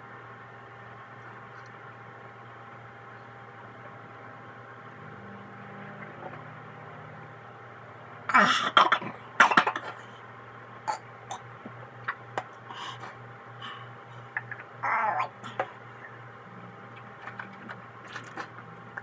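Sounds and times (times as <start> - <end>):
person coughing and gagging: 8.3 - 10.0
throat and mouth noises: 14.2 - 16.2.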